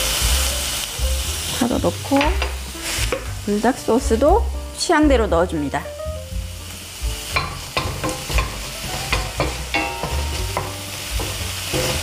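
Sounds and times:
light sizzle: 0:00.0 - 0:12.0
spatula scraping and knocking pan: 0:07.3 - 0:12.0.

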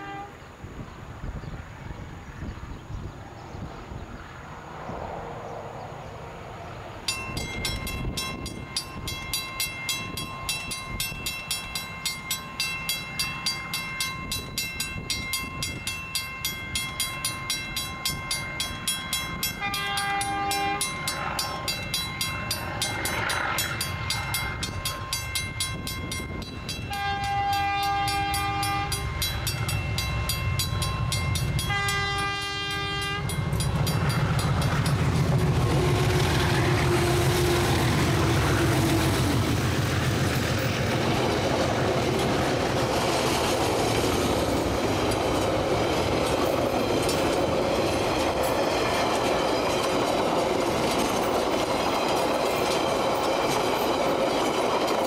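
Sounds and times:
diesel locomotive horn blasts: 0:00.0 - 0:00.6, 0:19.4 - 0:21.2, 0:26.8 - 0:29.6, 0:31.3 - 0:33.9, 0:34.6 - 0:39.5
low train rumble: 0:00.0 - 0:55.0
level crossing bell: 0:07.1 - 0:35.2.

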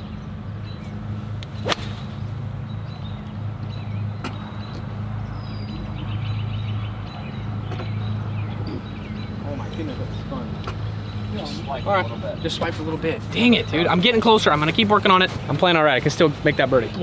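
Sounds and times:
steady low hum: 0:00.0 - 0:13.8
golf club striking ball: 0:01.4 - 0:02.3.

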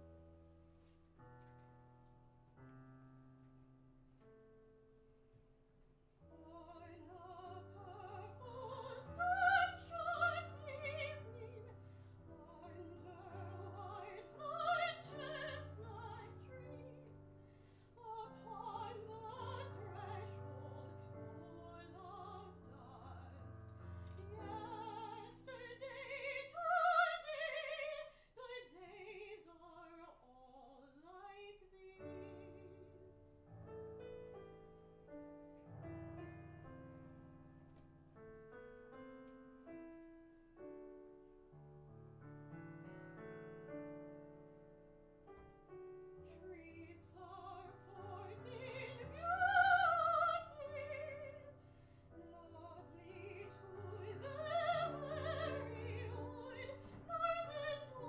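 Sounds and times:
piano accompaniment: 0:00.0 - 0:28.0, 0:32.0 - 0:58.0
soprano singing: 0:06.3 - 0:33.4, 0:45.7 - 0:58.0.

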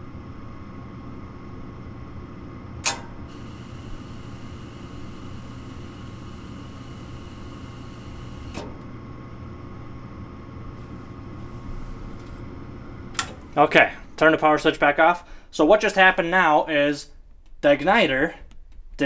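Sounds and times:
gas valve clicking: 0:02.8 - 0:08.9, 0:13.1 - 0:13.6
motor humming: 0:02.8 - 0:14.2
gas hissing through burner: 0:02.8 - 0:15.6.

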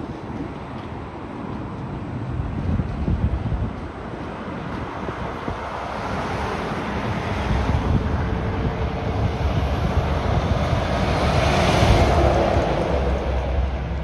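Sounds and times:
lorry engine and tyres rumbling: 0:00.0 - 0:14.0
wind buffeting microphone: 0:00.0 - 0:14.0
car passing: 0:04.0 - 0:14.0.

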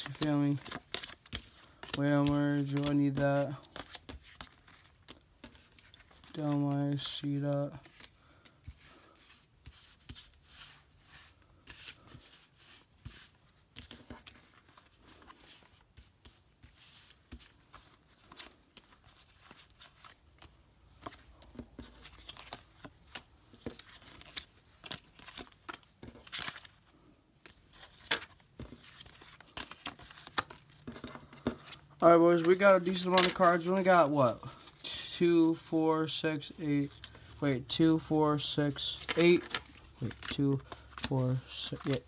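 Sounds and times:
cards tapping and sliding on table: 0:33.0 - 0:33.5.

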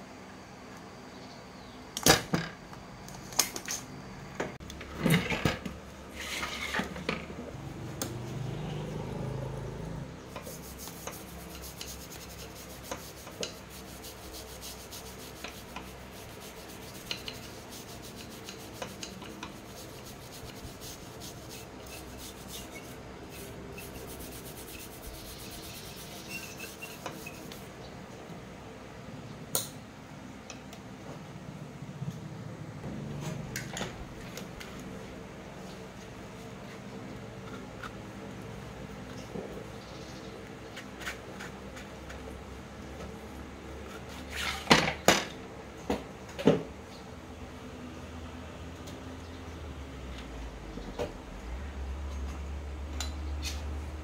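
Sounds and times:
hands rubbing and scraping: 0:10.3 - 0:27.7.

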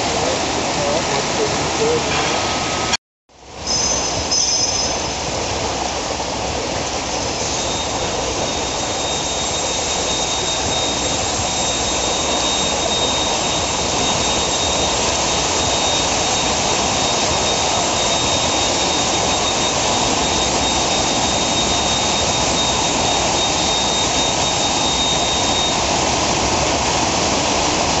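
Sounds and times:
high thin whistle: 0:03.6 - 0:05.3, 0:07.1 - 0:26.0.

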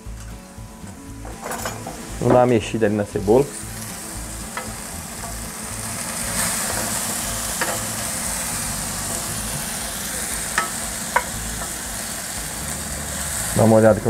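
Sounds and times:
onions sizzling in a frying pan: 0:00.0 - 0:14.0
utensil clicking against pan: 0:10.5 - 0:11.8.

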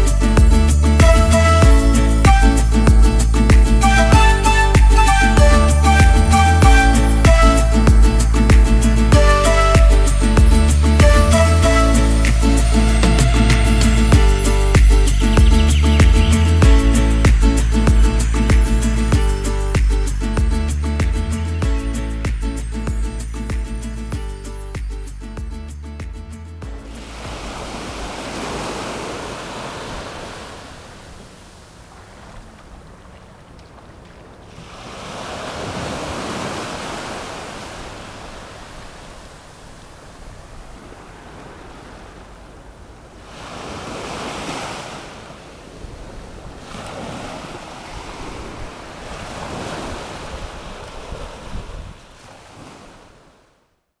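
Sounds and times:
small waves breaking on sand: 0:26.8 - 0:53.8
wind buffeting microphone: 0:37.5 - 0:52.7.

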